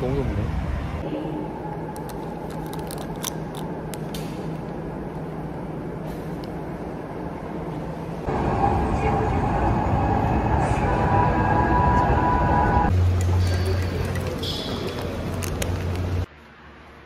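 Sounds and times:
subway train rumble: 0.0s - 2.6s, 3.4s - 16.3s
subway station hum: 0.0s - 17.0s
plastic wrapper crinkling: 2.0s - 3.6s.

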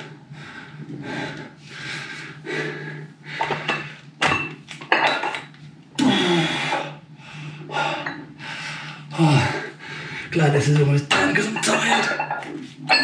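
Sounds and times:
hard breathing: 0.0s - 4.2s, 6.0s - 10.4s
metal dumbbell clanking on floor: 11.2s - 13.0s.

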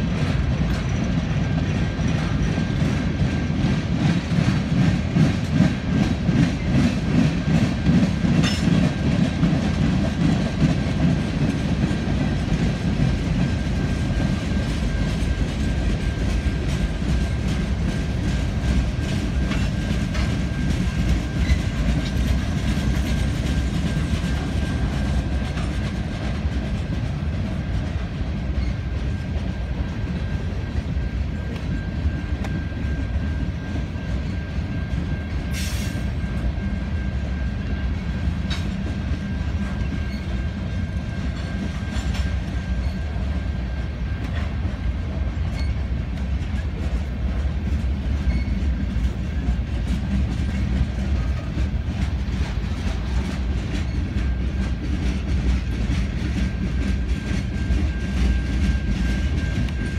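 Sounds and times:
train wheels rumbling on rails: 0.0s - 59.9s
wheels clicking over rail joints: 0.1s - 35.6s.

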